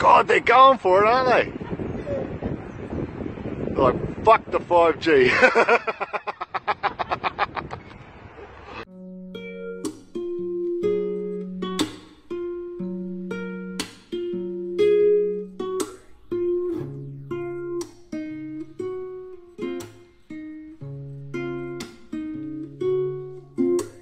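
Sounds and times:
acoustic guitar playing: 0:08.8 - 0:24.0.

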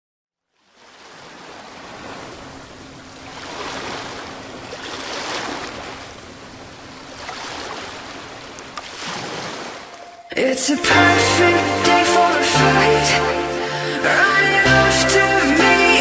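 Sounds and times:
ocean surf washing: 0:00.8 - 0:16.0.

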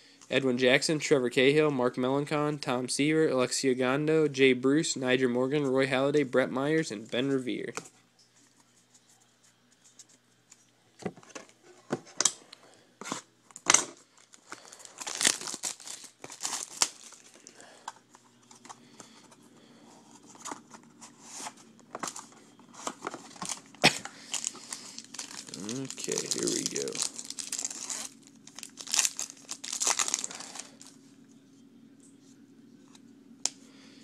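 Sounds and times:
foil wrappers crinkling and tearing: 0:13.8 - 0:19.2, 0:21.9 - 0:31.0.

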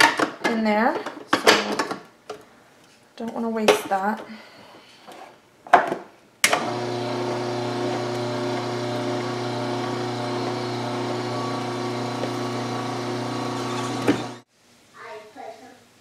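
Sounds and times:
juicer motor humming: 0:06.5 - 0:14.4.

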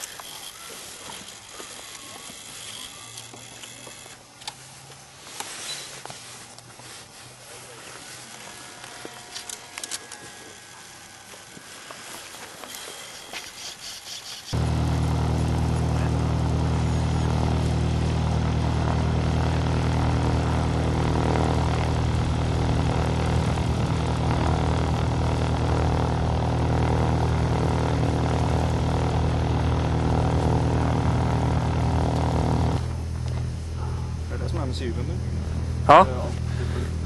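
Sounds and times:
motor running steadily: 0:00.0 - 0:04.5, 0:12.5 - 0:37.0.

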